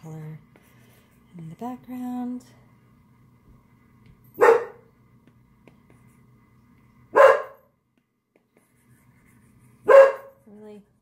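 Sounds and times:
dog barking: 4.4s - 4.9s, 7.2s - 7.7s, 9.8s - 10.4s.

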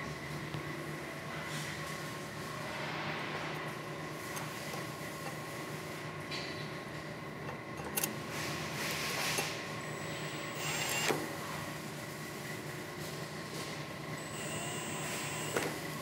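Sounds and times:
steady hum: 0.0s - 16.0s
cordless drill driving screws: 10.2s - 11.2s, 14.3s - 15.6s.

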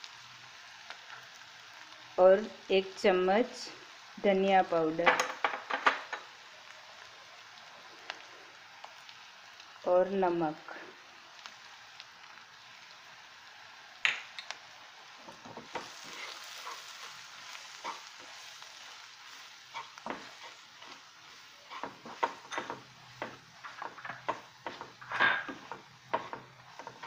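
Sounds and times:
oil sizzling: 0.0s - 27.0s
wooden spatula scraping pan: 19.3s - 21.0s, 21.6s - 27.0s.

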